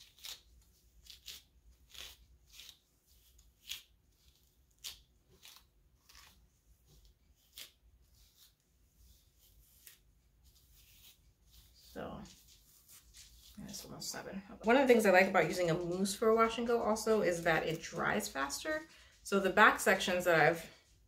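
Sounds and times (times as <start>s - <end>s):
hairbrush swishing through hair: 0.0s - 18.9s.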